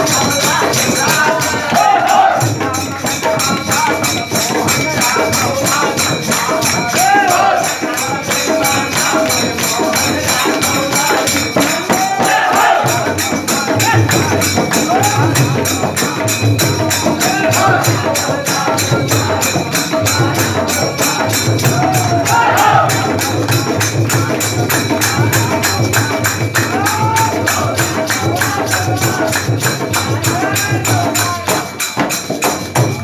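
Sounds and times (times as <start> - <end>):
people clapping: 0.0 - 2.6, 3.3 - 13.2, 21.6 - 31.8
men singing folk song: 0.0 - 31.9
hand drum beat: 0.0 - 33.0.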